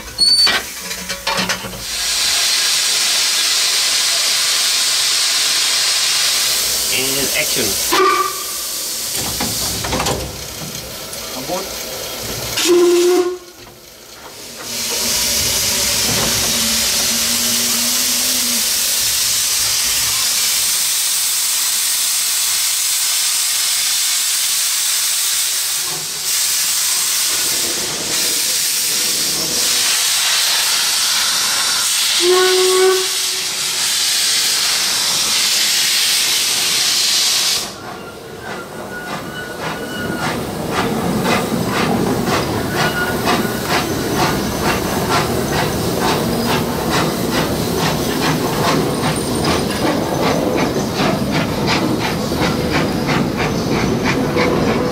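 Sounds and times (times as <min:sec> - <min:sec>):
steam locomotive hissing: 0:00.0 - 0:54.9
steam whistle blast: 0:07.9 - 0:08.8, 0:12.6 - 0:13.6, 0:16.5 - 0:18.7, 0:30.7 - 0:33.8
rhythmic locomotive exhaust beats: 0:24.7 - 0:54.9.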